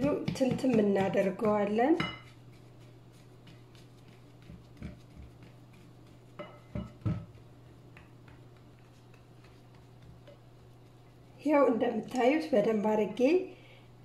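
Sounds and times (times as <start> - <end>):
spatula scraping mixture in bowl: 0.0 - 7.0
steady low hum: 0.0 - 14.0.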